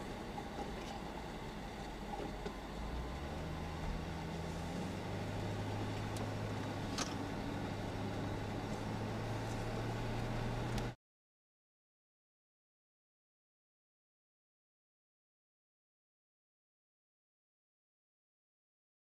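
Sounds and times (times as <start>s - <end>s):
car engine and road noise: 0.0s - 11.0s.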